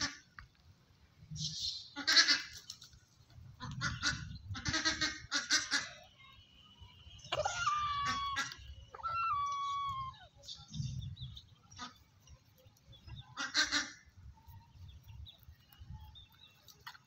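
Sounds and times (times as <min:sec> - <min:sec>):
poultry squawking: 0:03.6 - 0:06.1, 0:07.3 - 0:10.7, 0:13.2 - 0:14.2
poultry steady call: 0:03.6 - 0:17.0.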